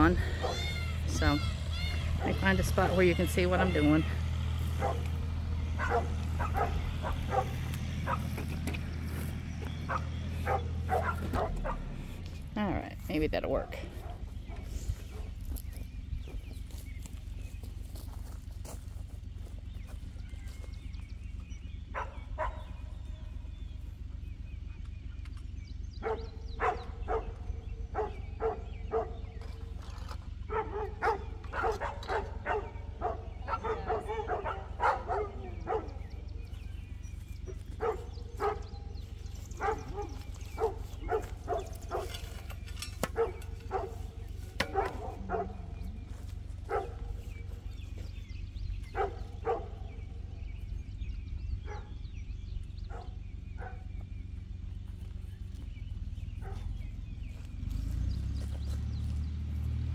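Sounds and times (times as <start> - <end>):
dogs barking and yipping: 0.0 - 59.9
steady low hum: 0.0 - 59.9
wind rumble on microphone: 4.7 - 30.0.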